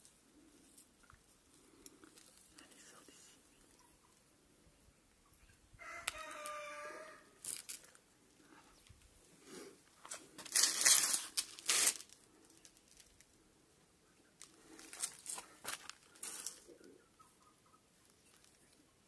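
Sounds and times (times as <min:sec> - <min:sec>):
rooster crowing: 0:05.8 - 0:07.4
rustling noise: 0:08.8 - 0:13.2, 0:14.4 - 0:16.8.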